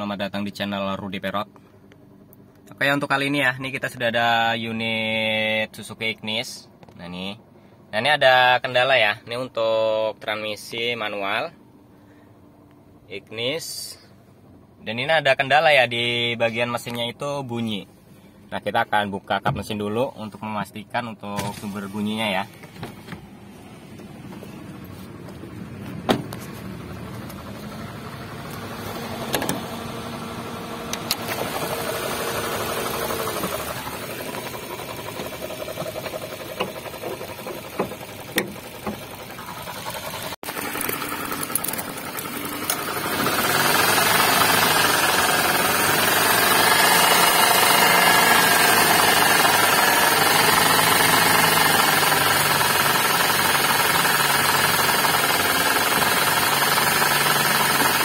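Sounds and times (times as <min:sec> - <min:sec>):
car engine idling with growl: 0:00.0 - 0:58.0
sharp clicks and knocks: 0:25.3 - 0:27.4, 0:29.3 - 0:29.7, 0:35.1 - 0:39.5.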